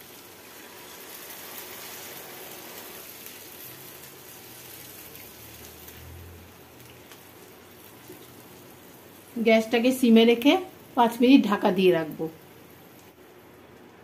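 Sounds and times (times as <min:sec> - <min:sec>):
water hissing in hot pan: 0:00.0 - 0:13.5.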